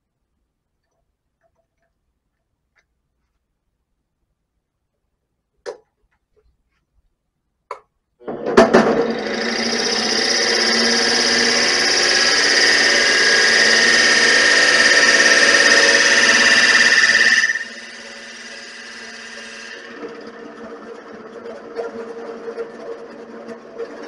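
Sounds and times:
lathe running with whine: 0:08.3 - 0:24.0.

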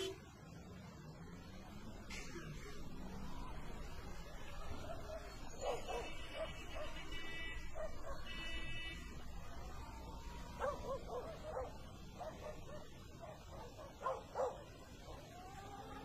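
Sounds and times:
dog yelping: 0:05.0 - 0:07.0, 0:10.6 - 0:14.6.

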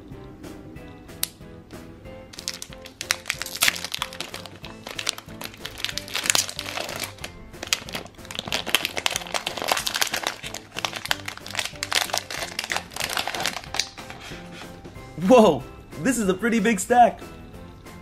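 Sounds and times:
background music: 0:00.0 - 0:18.0
foil wrapper crinkling: 0:02.4 - 0:14.8.

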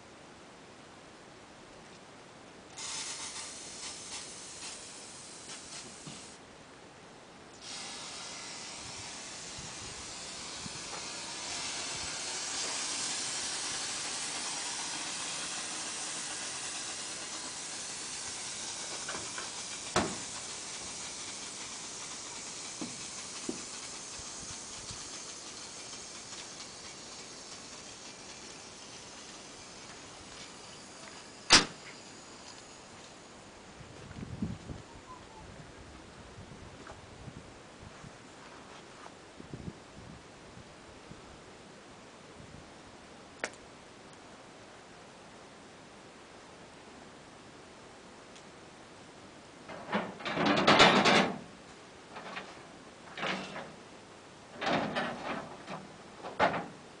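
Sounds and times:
compressed air hissing: 0:02.8 - 0:06.4, 0:07.6 - 0:33.3
sharp click: 0:43.4 - 0:43.6.

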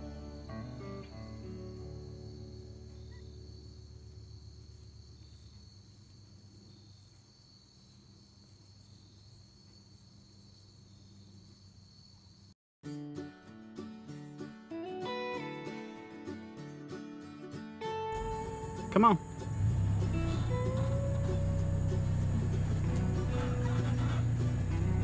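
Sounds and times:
background music: 0:00.0 - 0:03.6, 0:12.9 - 0:25.0
acoustic guitar music: 0:00.0 - 0:04.3, 0:12.8 - 0:25.0
crickets chirring: 0:00.0 - 0:12.6, 0:18.1 - 0:25.0.

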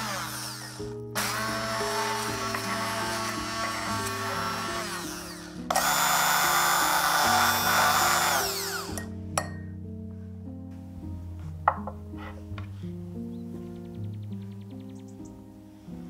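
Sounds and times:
immersion blender motor: 0:00.0 - 0:09.1.

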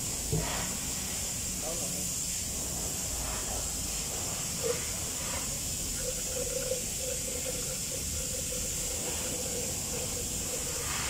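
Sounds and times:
liquid pouring from plastic jug: 0:05.8 - 0:11.0.

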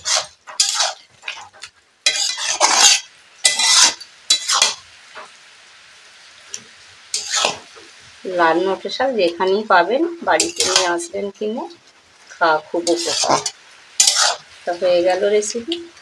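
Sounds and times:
metal spatula scraping a pan: 0:00.0 - 0:05.4, 0:06.5 - 0:07.9, 0:10.4 - 0:11.2, 0:12.8 - 0:15.5
faint sizzle of simmering food: 0:00.0 - 0:16.0.

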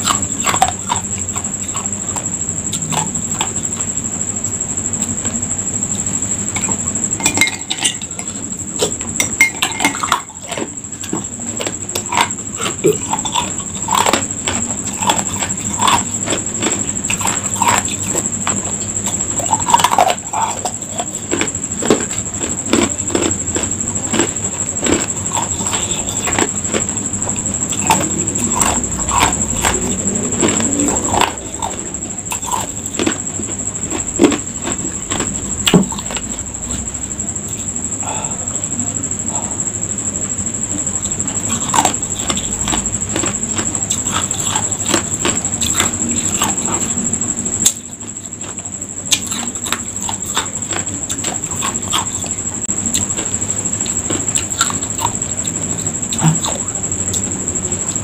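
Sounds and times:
high-pitched whine: 0:00.0 - 0:58.0
ice cubes being chewed: 0:06.6 - 0:36.8, 0:41.4 - 0:47.0, 0:48.4 - 0:57.2.

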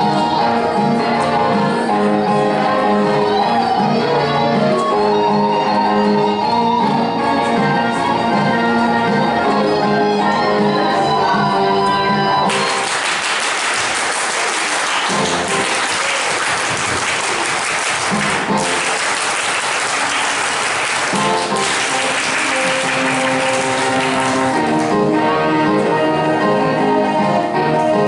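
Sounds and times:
choir singing: 0:00.0 - 0:04.6, 0:24.0 - 0:27.8
music: 0:00.0 - 0:28.0
crowd clapping hands: 0:12.5 - 0:25.1.

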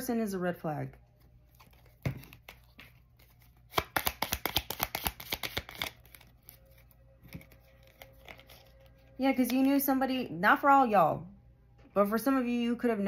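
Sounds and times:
cards shuffling clicks: 0:01.6 - 0:06.6
cards snapping: 0:03.6 - 0:06.6.

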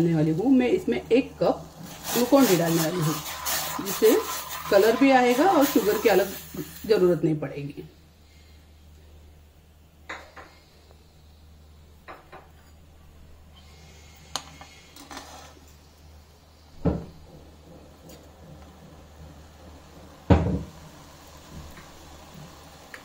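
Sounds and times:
liquid being stirred: 0:01.7 - 0:07.0.

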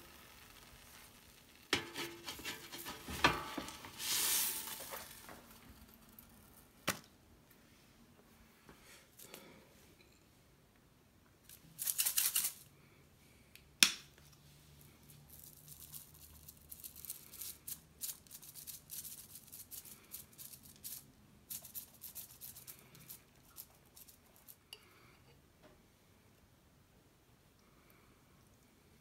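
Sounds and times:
spice shaker rattling: 0:00.3 - 0:06.1, 0:11.5 - 0:12.7, 0:15.1 - 0:24.6.

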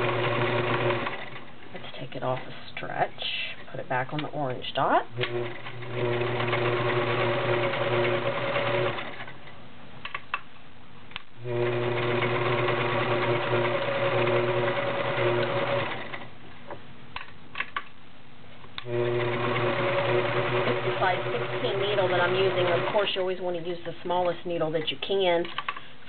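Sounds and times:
sewing machine stitching: 0:00.0 - 0:01.5, 0:05.2 - 0:09.4, 0:11.4 - 0:16.3, 0:18.8 - 0:23.4.

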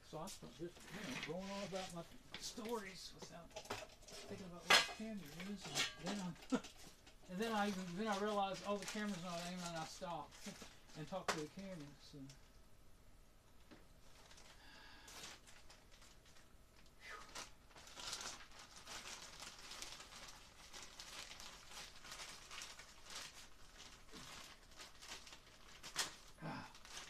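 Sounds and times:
plastic bag crinkling: 0:00.2 - 0:12.5, 0:14.0 - 0:27.0.

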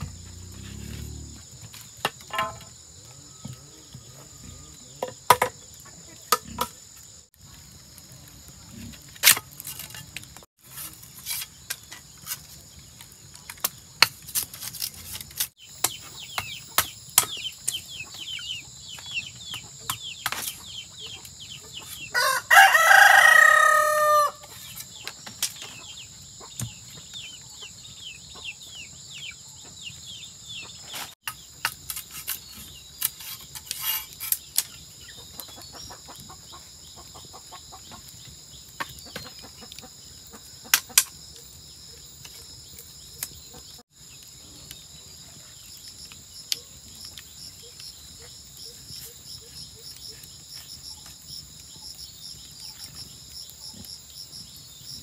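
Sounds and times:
high insect drone: 0:00.0 - 0:05.3
rooster crowing: 0:22.1 - 0:24.5.

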